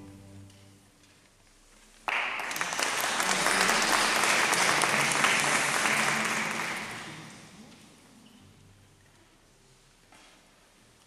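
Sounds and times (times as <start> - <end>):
audience applauding: 2.0 - 7.4.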